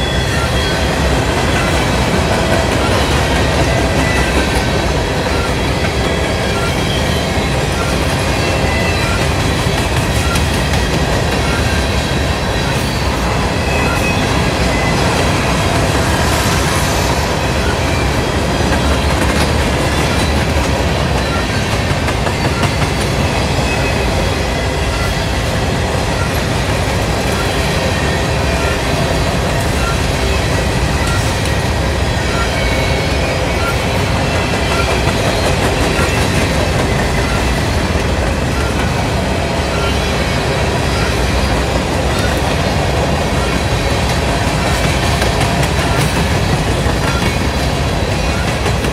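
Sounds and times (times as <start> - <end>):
train wheels rumbling on rails: 0.0 - 48.9.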